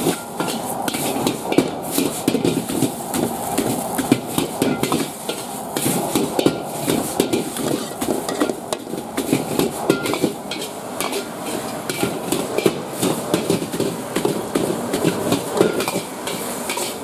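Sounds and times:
frying hiss: 0.0s - 17.0s.

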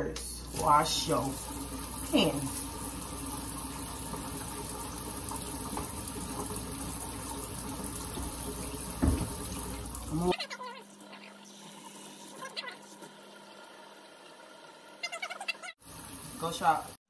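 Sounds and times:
faucet running into sink: 0.4s - 17.0s
hands washing under water: 0.5s - 10.3s
short thump: 9.0s - 9.4s.

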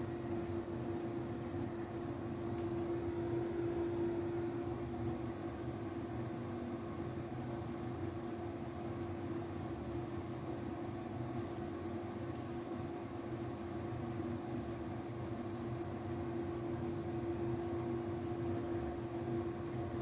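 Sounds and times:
machine hum: 0.0s - 20.0s
faint clicks: 1.3s - 1.6s, 6.2s - 6.4s, 7.3s - 7.5s, 15.7s - 16.6s, 18.2s - 18.4s.

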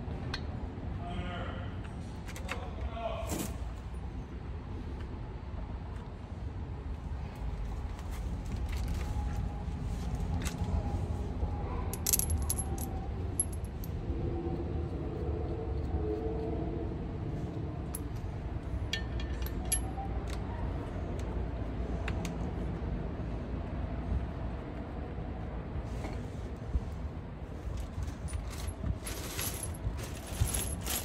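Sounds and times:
metallic clinks of steel parts: 12.0s - 13.9s, 18.9s - 20.1s, 28.2s - 31.0s.

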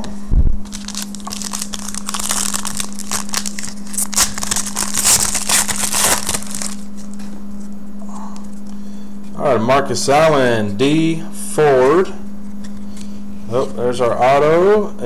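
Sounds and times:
plastic wrapper crinkling: 0.6s - 7.0s.

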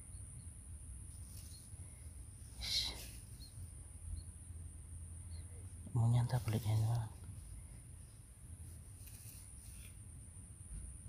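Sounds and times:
high insect drone: 0.0s - 6.8s.

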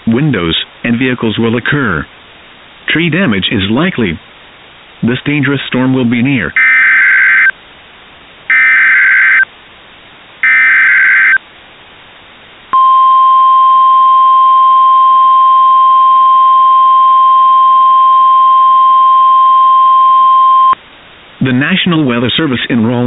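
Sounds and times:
steady alarm tone: 6.6s - 7.5s, 8.5s - 9.4s, 10.4s - 11.4s
warbling digital data bursts: 8.5s - 9.4s, 10.4s - 11.4s.

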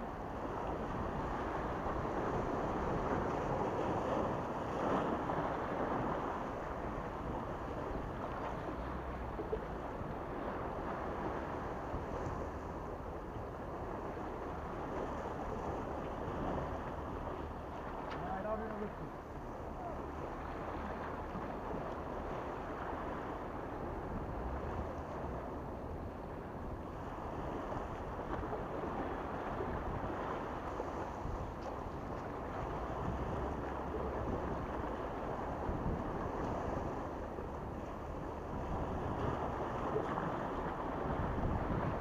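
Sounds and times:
wind buffeting microphone: 0.0s - 42.0s
waves washing against rocks: 19.8s - 42.0s.

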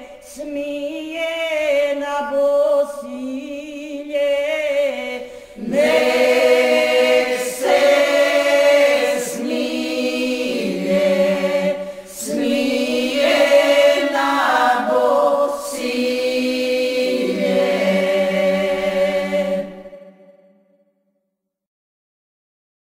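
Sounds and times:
group singing unaccompanied: 0.6s - 20.5s
singers breathing: 5.2s - 5.7s, 11.8s - 12.2s.

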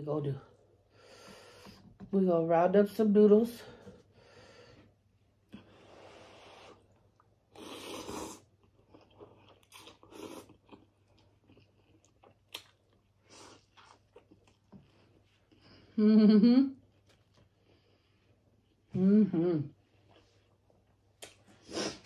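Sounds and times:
biting into a taco: 7.1s - 15.6s.

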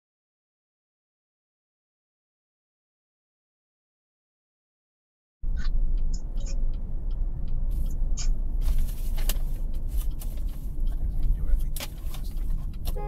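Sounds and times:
engine and tyre rumble: 5.4s - 13.0s.

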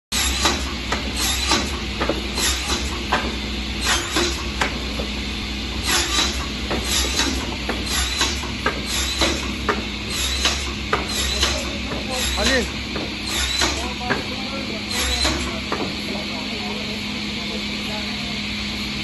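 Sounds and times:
wood cutting machine humming: 0.2s - 19.0s
sharp knocks and clacks: 0.4s - 5.1s, 5.9s - 16.0s.

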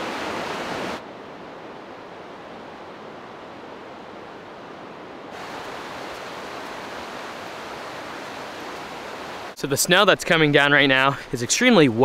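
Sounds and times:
outdoor rushing hiss: 5.3s - 9.6s.

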